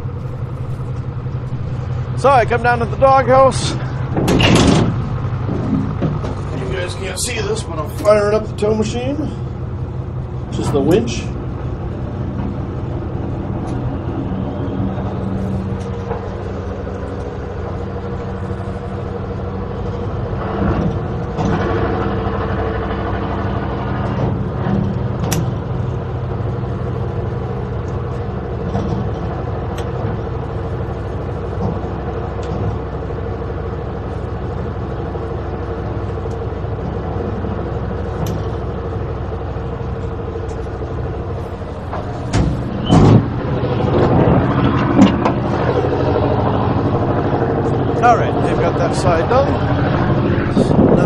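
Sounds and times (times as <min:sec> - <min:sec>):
tugboat machinery humming: 0:00.0 - 0:51.0
loud thumps: 0:04.0 - 0:06.6, 0:41.7 - 0:45.8.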